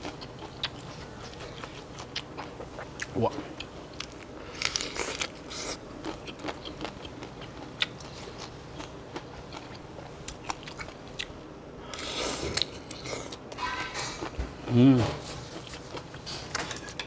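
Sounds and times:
person chewing shrimp: 0.0 - 14.4.

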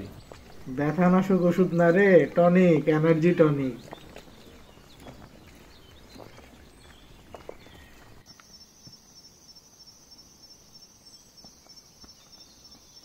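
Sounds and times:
high pulsing insect trill: 8.3 - 13.0.

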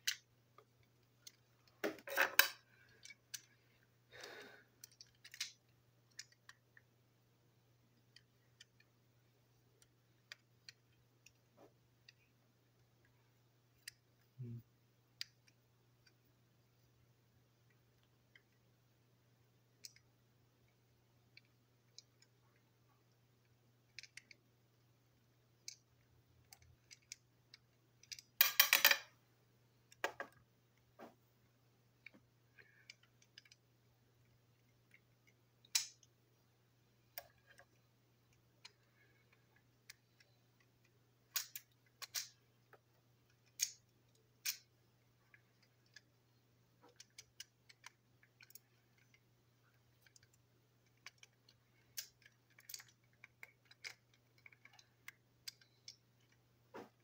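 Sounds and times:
plastic toy parts clicking: 0.0 - 3.6, 4.8 - 6.9, 8.0 - 8.9, 13.8 - 14.2, 19.8 - 20.1, 23.9 - 24.4, 25.6 - 29.1, 32.8 - 33.6, 34.6 - 36.1, 37.1 - 44.7, 45.3 - 46.2, 46.8 - 57.0
faint steady low hum: 0.0 - 57.0.

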